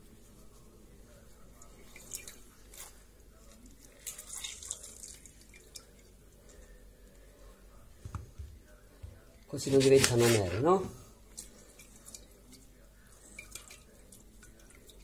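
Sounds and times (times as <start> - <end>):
juice dripping into water: 1.6 - 7.3, 11.2 - 15.0.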